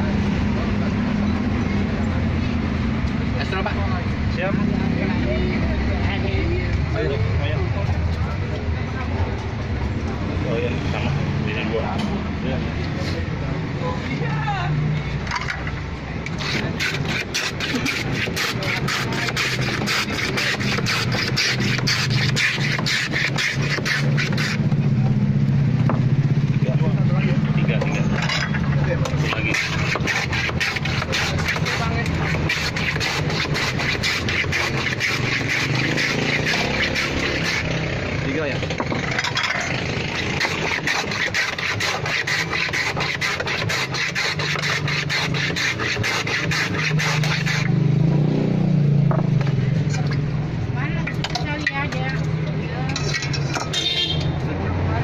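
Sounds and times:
ice shaving scraping: 16.2s - 25.0s, 27.5s - 47.8s.

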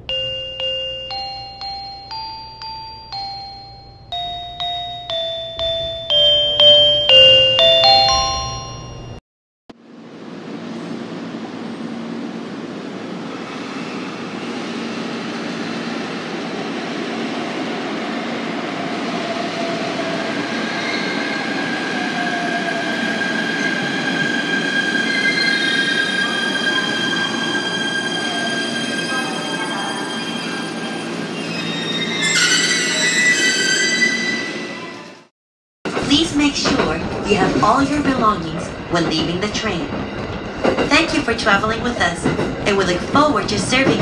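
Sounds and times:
high squeal of wheels and brakes: 23.1s - 35.2s
train wheels rumbling on rail: 35.9s - 44.0s.

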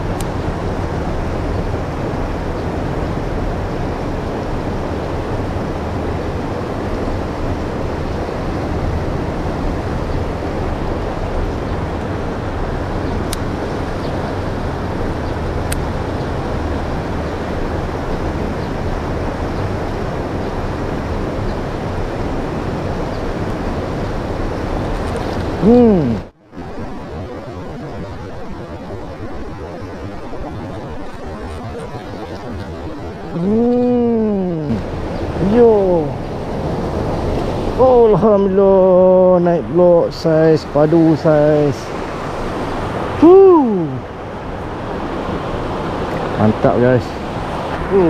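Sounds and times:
water rushing over a weir: 13.2s - 48.0s.

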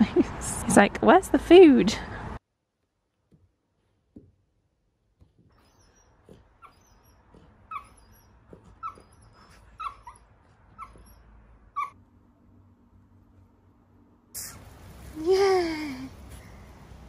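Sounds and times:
puppy whimpering: 5.5s - 12.0s.

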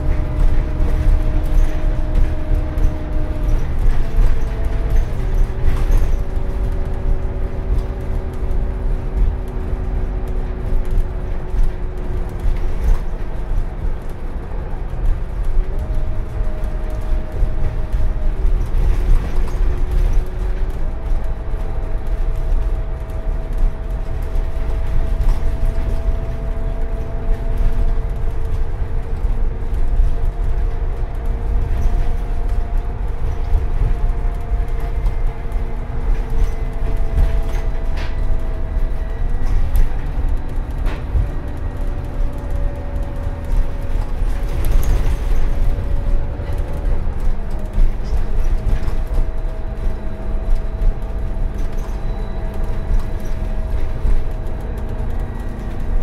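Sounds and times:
bus engine drone: 0.0s - 56.0s
steady engine whine: 0.0s - 56.0s.

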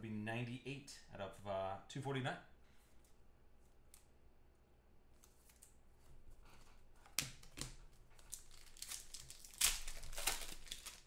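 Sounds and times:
plastic crinkling and rustling: 7.4s - 11.0s.

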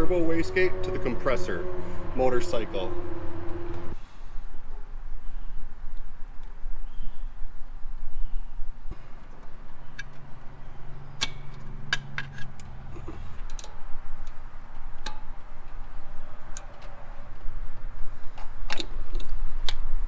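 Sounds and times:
pliers clicking on hose clamps: 9.4s - 10.2s, 11.2s - 15.8s.

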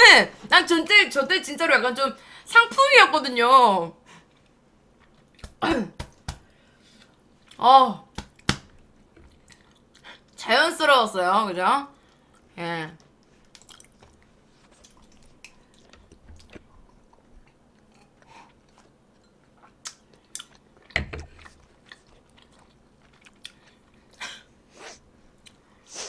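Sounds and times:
quiet chewing: 8.8s - 10.4s, 12.0s - 24.2s.

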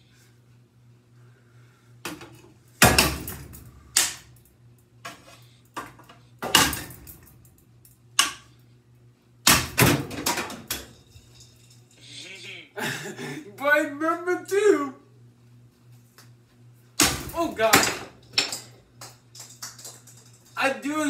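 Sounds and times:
low steady hum: 0.0s - 21.0s
fan blades striking a tool: 2.8s - 4.4s, 6.4s - 7.3s, 9.4s - 11.0s, 17.0s - 18.6s.

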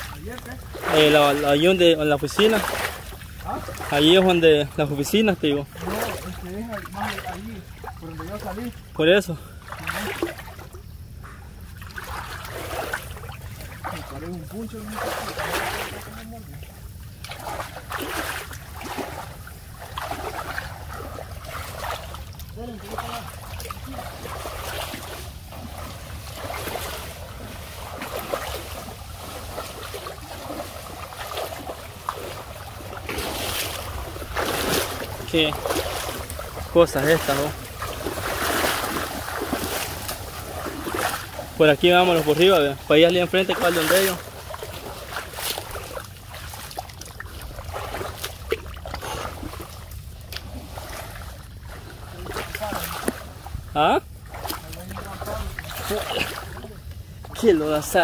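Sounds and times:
people wading through water: 0.0s - 58.0s.

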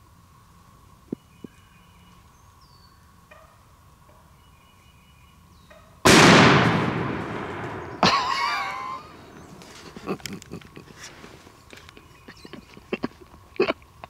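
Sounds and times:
shotgun shot: 6.1s - 8.4s.

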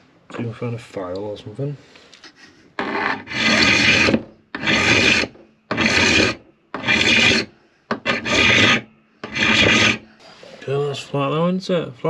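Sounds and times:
hand file rasping on metal: 2.8s - 10.1s.

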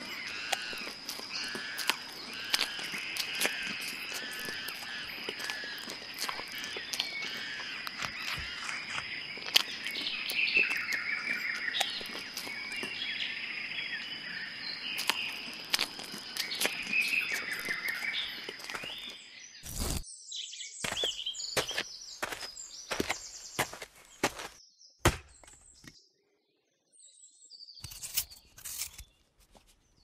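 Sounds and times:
crunching bites into vegetables: 0.0s - 13.2s, 14.8s - 20.0s
small birds chirping: 0.0s - 30.0s.

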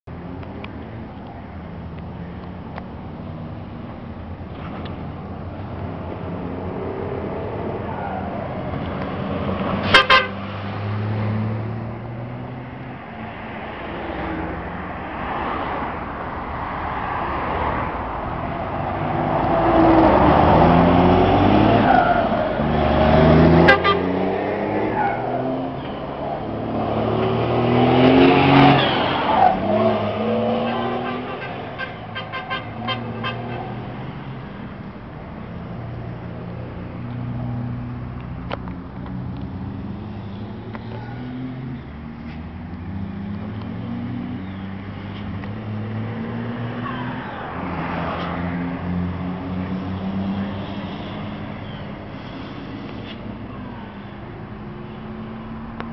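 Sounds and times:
diesel truck accelerating: 2.4s - 31.8s
truck horn toot: 9.8s - 10.4s, 23.6s - 24.2s, 30.5s - 33.8s.

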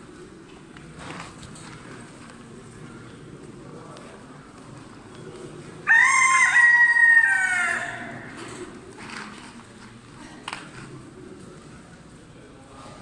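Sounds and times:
rooster crowing: 5.8s - 8.4s.

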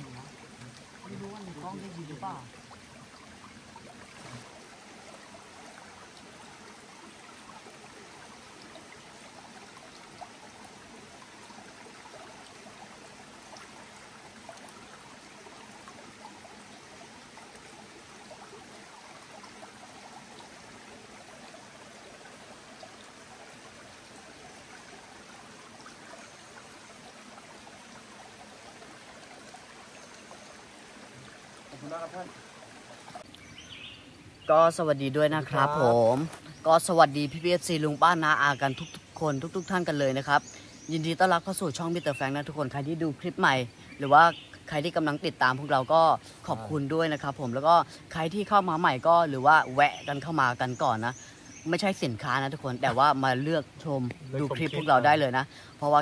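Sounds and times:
stream trickling over rocks: 0.0s - 56.0s.

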